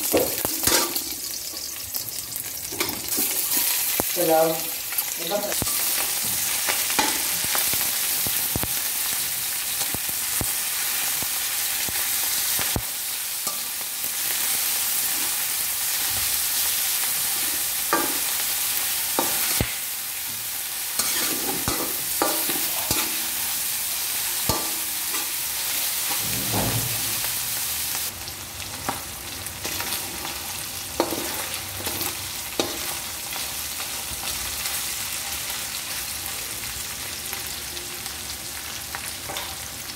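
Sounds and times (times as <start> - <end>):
meat sizzling in a wok: 0.0 - 39.9
metal spatula scraping a pan: 0.2 - 3.8, 21.0 - 23.6.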